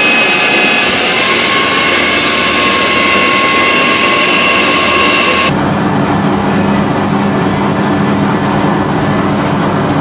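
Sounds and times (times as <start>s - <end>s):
lathe spindle and spraying coolant: 0.0s - 5.6s
high machine whine: 0.0s - 9.1s
lower machine whine: 0.0s - 10.0s.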